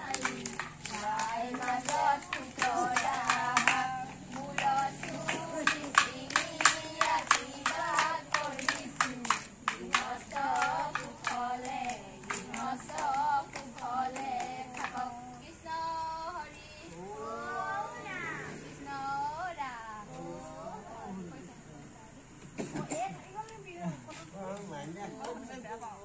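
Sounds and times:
hand clapping: 0.0 - 15.3
women and girls singing: 0.0 - 21.3.

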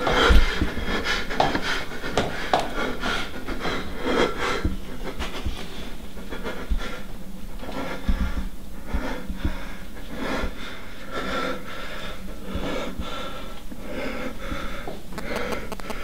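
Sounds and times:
man breathing fast and heavily: 0.0 - 16.0
soft low thumps: 7.9 - 9.8.

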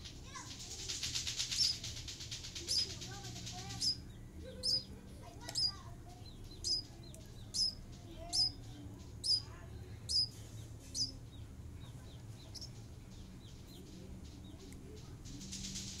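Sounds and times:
sharp high bird chirps: 1.0 - 1.9, 2.6 - 3.0, 3.6 - 8.6, 9.2 - 11.2, 12.4 - 12.8.

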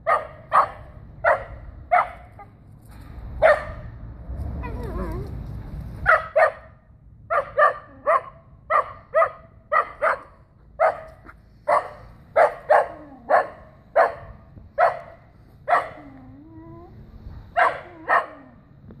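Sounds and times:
dog barking: 0.0 - 2.3, 3.4 - 3.9, 6.0 - 16.1, 17.5 - 18.6.

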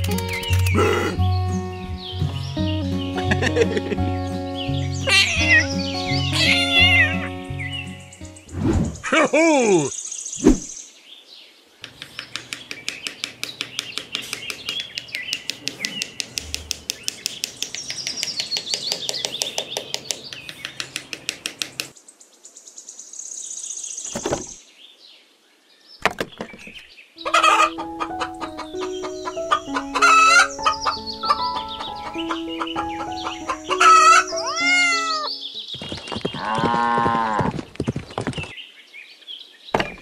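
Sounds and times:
background music with melody: 0.0 - 8.5, 27.2 - 35.7
chickens clucking: 11.8 - 21.9, 27.2 - 35.3.

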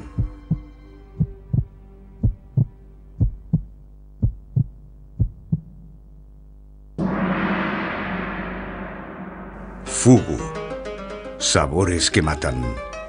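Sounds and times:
heartbeat thumps: 0.0 - 5.9
low hum: 1.5 - 11.0
loud ringing hit: 7.0 - 11.2.

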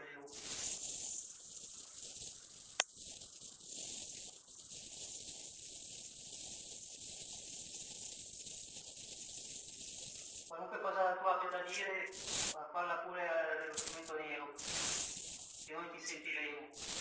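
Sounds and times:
recording hiss: 0.0 - 10.5, 11.5 - 12.6, 13.6 - 17.0
sharp click: 13.7 - 14.1.

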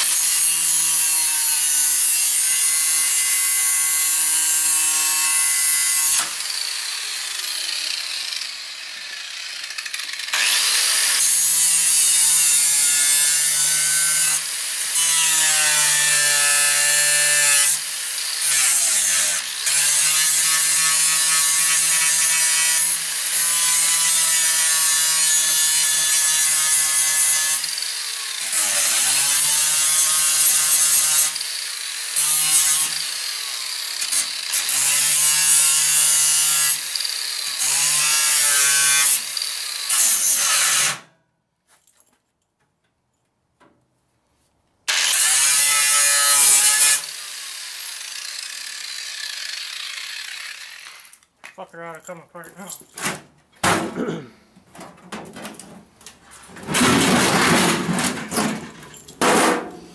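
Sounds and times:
angle grinder cutting metal: 0.0 - 41.1, 44.9 - 51.3.

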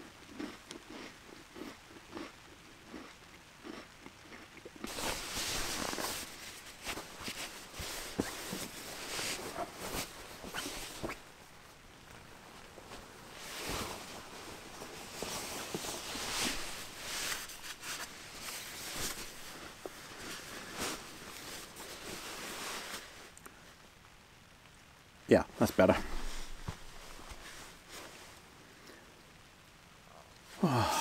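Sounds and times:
nylon jacket rustling: 4.9 - 23.3, 25.9 - 28.4
zip being done up: 9.5 - 11.2.

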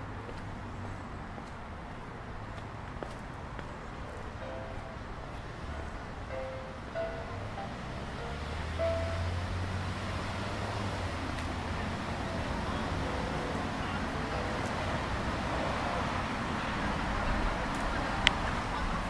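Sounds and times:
distant road traffic hum: 0.0 - 19.0.

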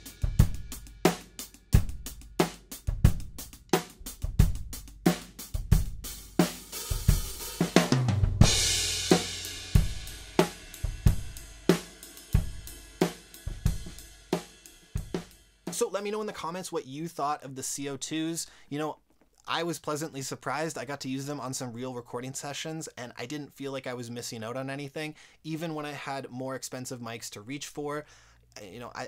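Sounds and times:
drum kit groove: 0.0 - 18.3
crash cymbal hit: 8.4 - 15.5.

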